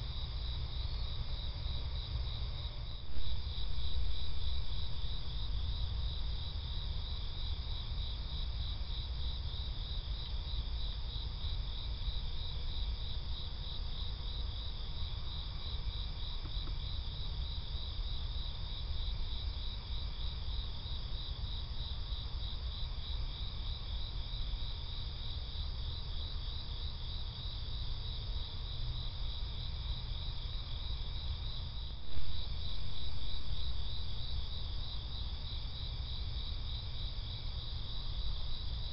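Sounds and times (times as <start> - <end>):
night insects trilling: 0.0 - 38.9.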